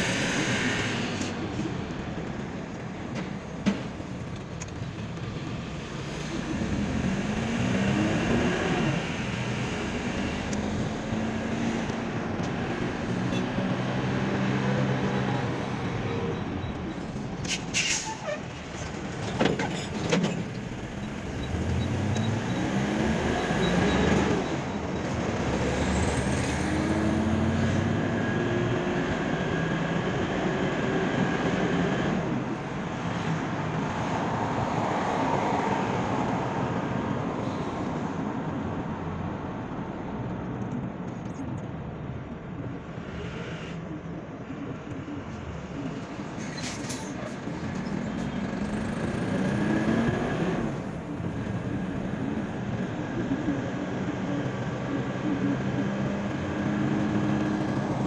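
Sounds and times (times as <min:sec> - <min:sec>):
road noise: 0:00.0 - 0:58.0.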